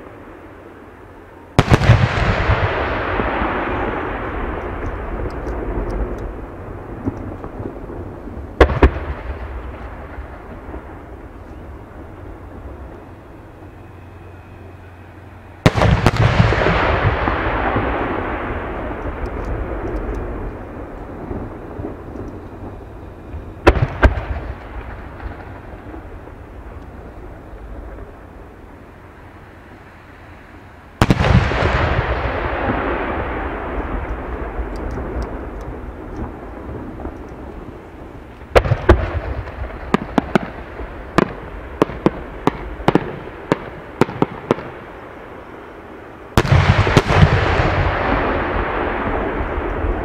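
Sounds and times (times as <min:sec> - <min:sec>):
rumble and hiss of fireworks: 0:00.0 - 0:50.0.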